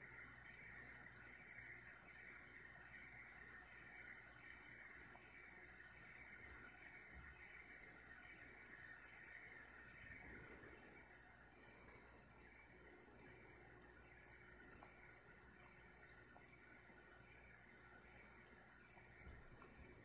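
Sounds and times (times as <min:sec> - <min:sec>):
faint steady hiss: 0:00.0 - 0:20.0.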